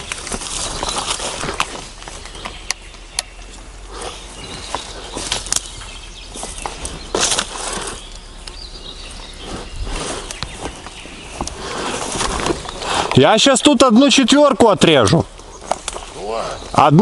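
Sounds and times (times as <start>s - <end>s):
twigs snapping: 0.0s - 8.7s, 10.1s - 13.3s, 15.3s - 16.2s
brush and leaves rustling: 0.0s - 17.0s.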